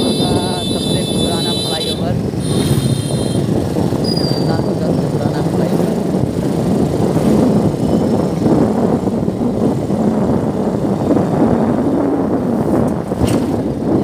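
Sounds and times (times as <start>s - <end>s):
motorbike engine: 0.0s - 9.3s
tyre road noise: 0.0s - 14.0s
wind buffeting microphone: 0.0s - 14.0s.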